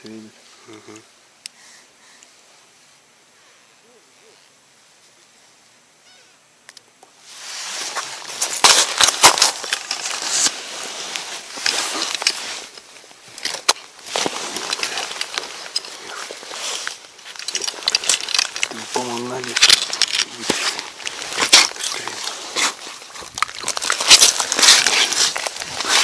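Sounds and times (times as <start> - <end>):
crunching and scraping in ice: 7.4 - 26.0
sharp clicks and cracks: 13.3 - 22.4, 23.2 - 26.0.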